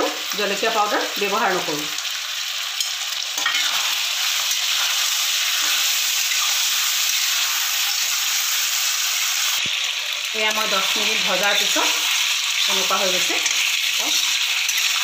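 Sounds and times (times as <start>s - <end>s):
chicken sizzling in oil: 0.0s - 15.0s
spatula stirring in pan: 2.8s - 8.0s.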